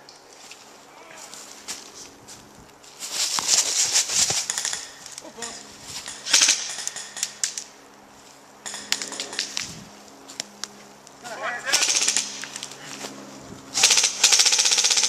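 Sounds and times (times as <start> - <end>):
airsoft rifle bursts: 4.2 - 7.6, 11.6 - 12.9, 13.8 - 15.0.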